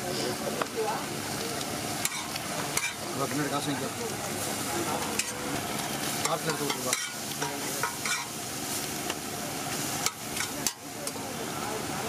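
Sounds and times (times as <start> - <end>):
frying sizzle: 0.0 - 12.0
metal spatula scraping iron pan: 2.0 - 3.0, 6.2 - 8.3.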